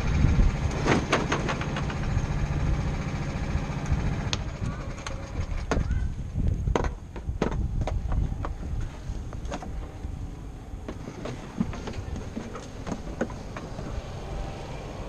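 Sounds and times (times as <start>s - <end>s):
go-kart engines idling: 0.0s - 15.0s
sharp knocks and clicks: 6.7s - 8.6s, 10.8s - 13.9s.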